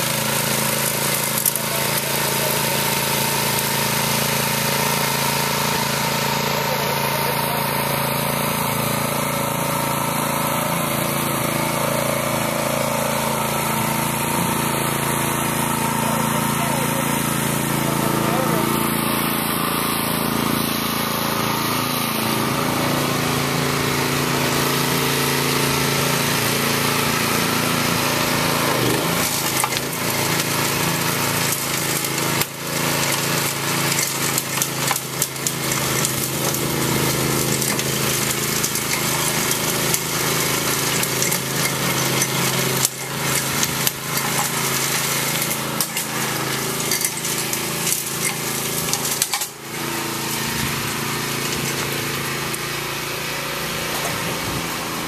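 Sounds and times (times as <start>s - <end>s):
small gas engine running: 0.0s - 55.0s
clicks and knocks of stones: 28.8s - 52.7s.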